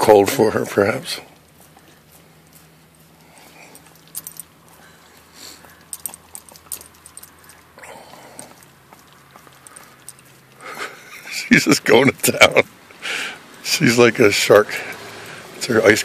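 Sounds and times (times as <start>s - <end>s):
dog licking and biting ice cream: 0.6s - 12.8s.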